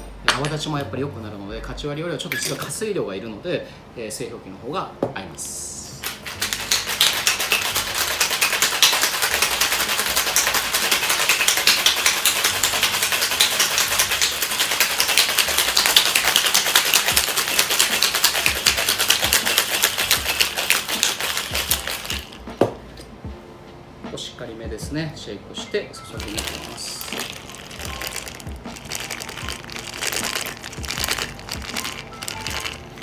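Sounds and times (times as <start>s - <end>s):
ice rattling in metal shaker: 6.0s - 22.4s, 26.1s - 33.0s.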